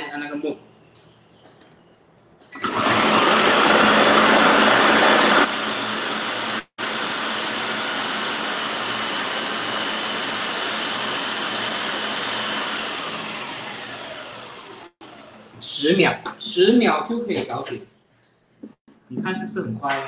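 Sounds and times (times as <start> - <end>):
food processor chopping vegetables: 2.6 - 15.5.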